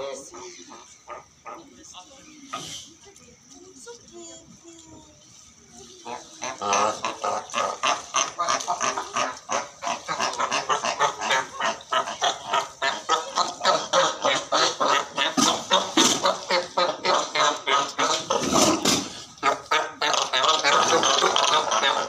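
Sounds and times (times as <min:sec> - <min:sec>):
seals barking: 0:06.1 - 0:18.6, 0:19.3 - 0:22.0.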